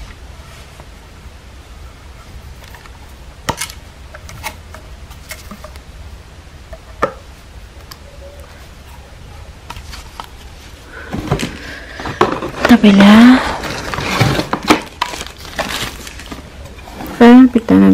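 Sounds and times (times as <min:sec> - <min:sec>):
low steady hum: 0:00.0 - 0:17.9
plastic parts clicking and knocking: 0:11.1 - 0:16.4.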